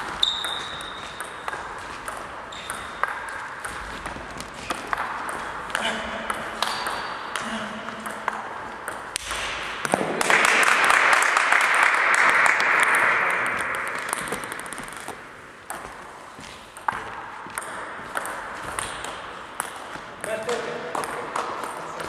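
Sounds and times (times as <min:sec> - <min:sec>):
applause: 0:10.2 - 0:14.1.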